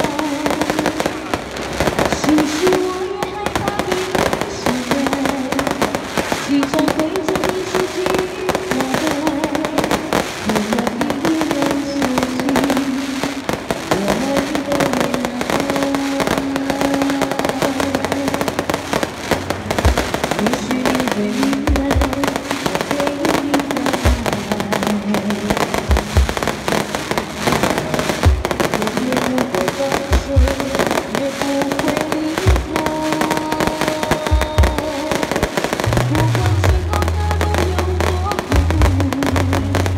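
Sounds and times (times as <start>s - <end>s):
fireworks crackling: 0.0s - 39.9s
low thumps: 25.7s - 27.4s.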